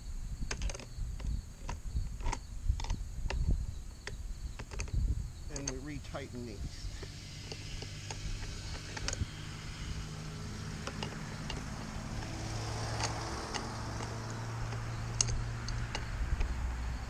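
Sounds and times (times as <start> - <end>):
car engine hum: 0.0 - 17.0
wrench clicking on metal: 4.0 - 5.8, 10.8 - 16.6.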